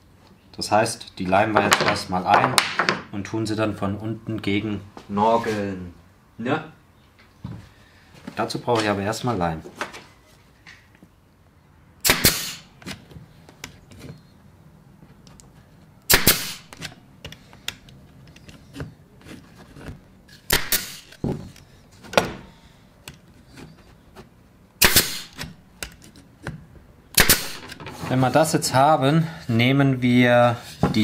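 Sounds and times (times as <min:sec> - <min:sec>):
pneumatic nailer firing nails: 0:12.0 - 0:13.0, 0:16.1 - 0:17.0, 0:20.3 - 0:21.3, 0:24.8 - 0:26.0, 0:27.1 - 0:28.0.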